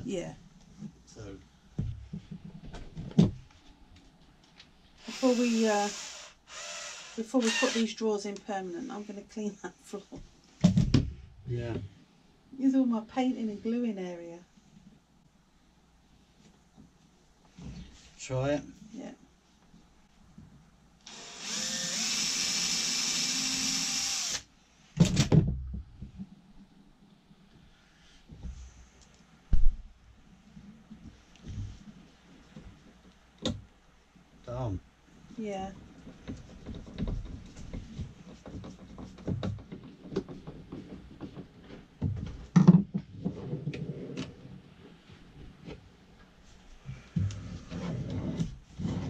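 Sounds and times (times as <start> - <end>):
cordless drill drilling into wood: 5.0 - 8.0, 21.0 - 24.5
drill knocking on wooden floor: 21.1 - 24.4.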